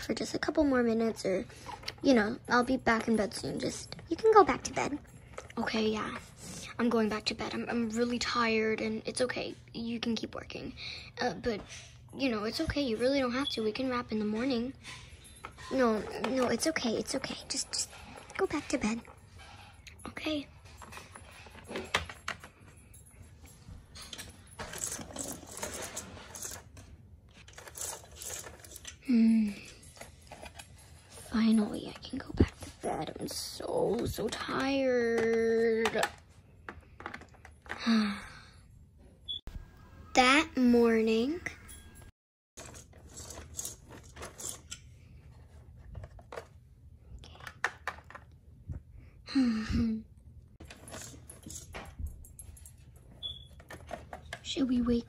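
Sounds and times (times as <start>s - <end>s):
plastic toys clicking and tapping: 24.1s - 29.0s, 33.3s - 38.0s, 42.6s - 44.8s, 47.2s - 48.4s.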